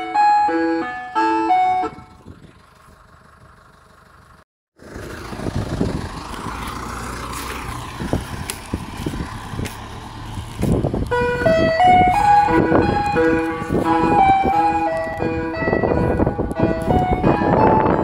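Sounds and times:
ice cream van chime tune: 0.0s - 2.4s, 11.1s - 18.0s
van engine pulling away: 0.0s - 18.0s.

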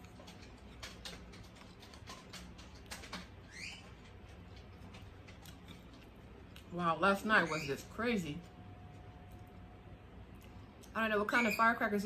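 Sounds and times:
person chewing: 0.0s - 3.2s, 4.2s - 6.7s, 8.9s - 11.0s
low steady hum: 0.0s - 12.0s.

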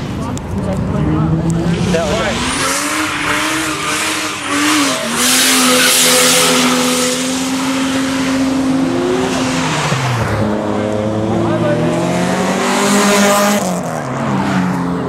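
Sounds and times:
car engine revving high: 0.8s - 15.0s
tyres screeching: 2.3s - 10.2s.

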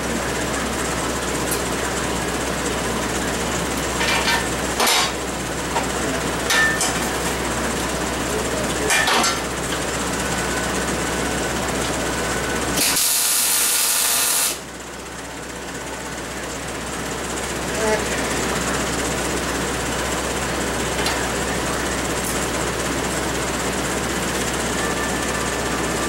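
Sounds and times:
shop hum: 0.0s - 26.0s
short sharp welding bursts: 12.8s - 14.6s
welder hissing: 12.8s - 14.6s.

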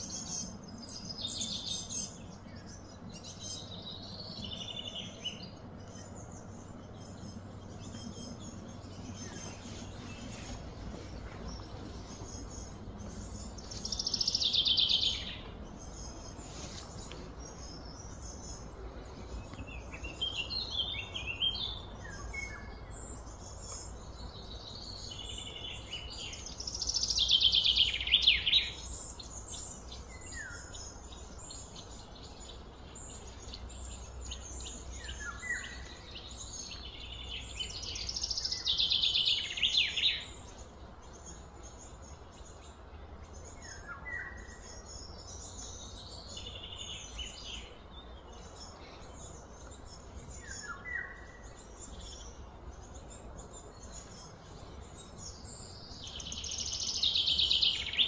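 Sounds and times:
low background rumble: 0.0s - 39.6s
birds chirping: 0.0s - 58.0s.

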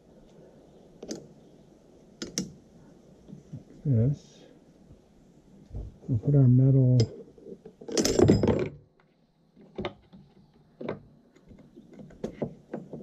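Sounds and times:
light metal clicks and taps: 2.2s - 2.6s
metal parts clattering: 7.8s - 8.8s.

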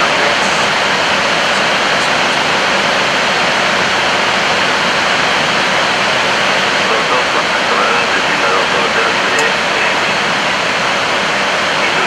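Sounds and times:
rushing air in aircraft cockpit: 0.0s - 12.0s.

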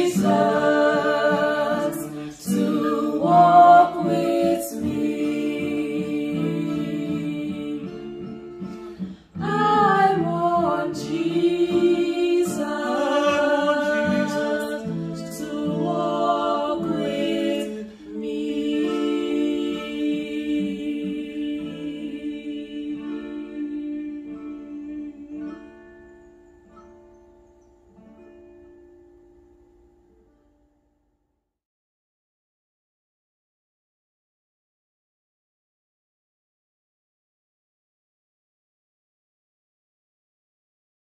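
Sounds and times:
women singing: 0.0s - 26.2s
acoustic guitar: 0.0s - 31.0s.

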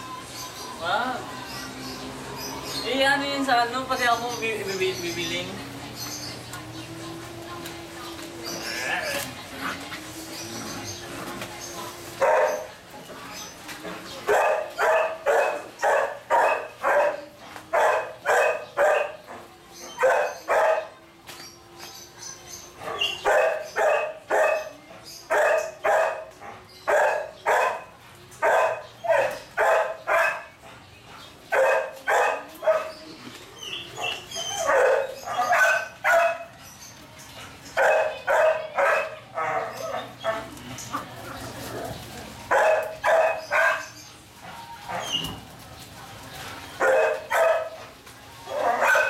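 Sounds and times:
dog barking: 12.2s - 12.7s, 14.3s - 19.3s, 20.0s - 21.0s, 22.8s - 30.6s, 31.5s - 33.0s, 34.0s - 36.6s, 37.8s - 40.5s, 42.5s - 44.0s, 46.8s - 47.8s, 48.5s - 49.0s.

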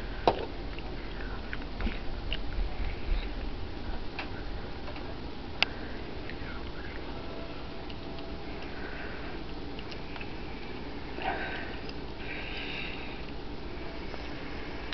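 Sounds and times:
kitten chewing: 5.0s - 11.0s.

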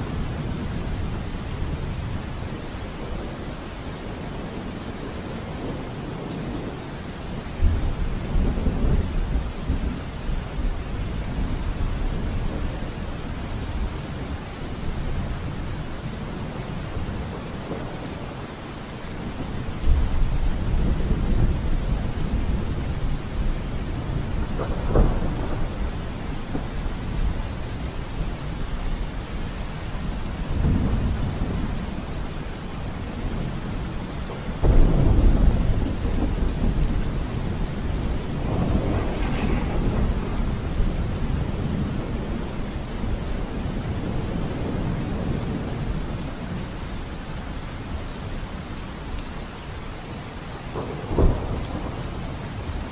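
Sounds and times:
steady rain falling: 0.0s - 52.9s
low rolls of thunder: 19.2s - 46.8s, 50.7s - 52.9s.

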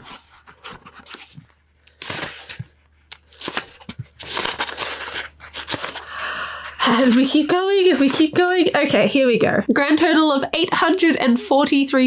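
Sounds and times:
book pages flipping: 0.0s - 9.0s.

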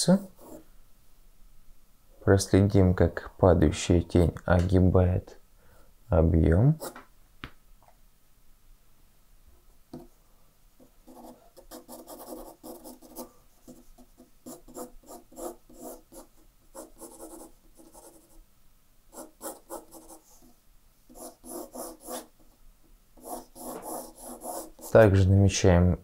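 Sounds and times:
pencil scratching on paper: 0.4s - 0.6s, 11.0s - 18.4s, 19.1s - 22.6s, 23.2s - 25.1s.

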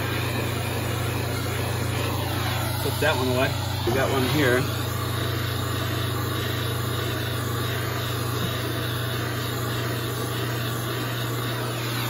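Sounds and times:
gas torch hissing: 0.0s - 12.0s.

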